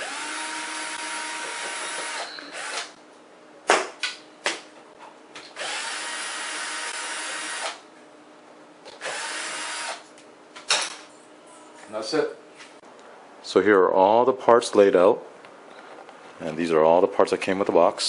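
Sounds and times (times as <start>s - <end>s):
cordless drill motor whining: 0.0s - 2.9s, 5.6s - 7.8s, 9.0s - 10.0s.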